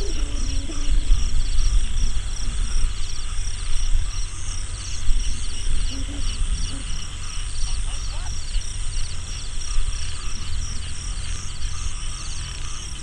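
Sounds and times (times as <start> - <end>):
crickets chirping: 0.0 - 13.0
wind on microphone: 0.0 - 13.0.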